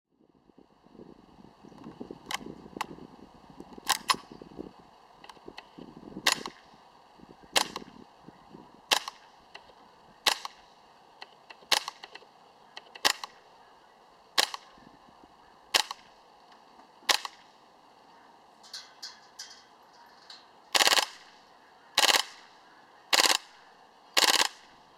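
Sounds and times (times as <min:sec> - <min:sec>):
airsoft rifle shots: 0:03.8 - 0:04.4, 0:05.6 - 0:06.7, 0:07.5 - 0:08.0, 0:08.9 - 0:13.6, 0:14.3 - 0:14.8, 0:15.7 - 0:16.2, 0:17.0 - 0:17.6, 0:20.7 - 0:24.8.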